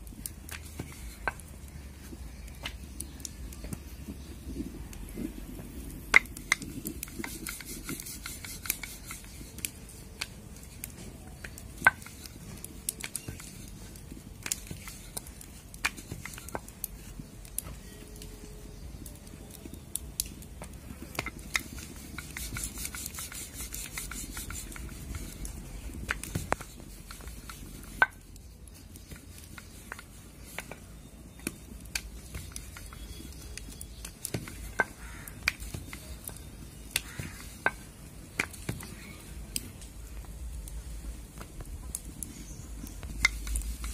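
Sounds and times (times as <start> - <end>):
light scratchy ticks: 0.0 - 43.9
rolling pin clicking on marble: 0.1 - 4.7, 5.8 - 17.6, 18.9 - 39.1.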